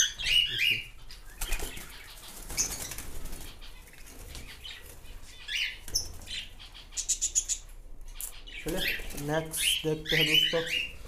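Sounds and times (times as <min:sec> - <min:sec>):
high bird chirps: 0:00.0 - 0:11.0
birds flapping wings in cage: 0:01.4 - 0:05.1, 0:08.7 - 0:09.6.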